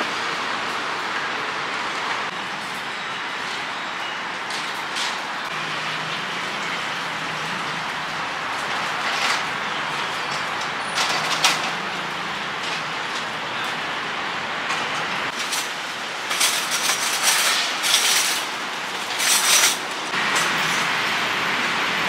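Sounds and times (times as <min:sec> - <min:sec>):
metal folding tables clattering: 0:08.6 - 0:13.8, 0:14.7 - 0:20.9.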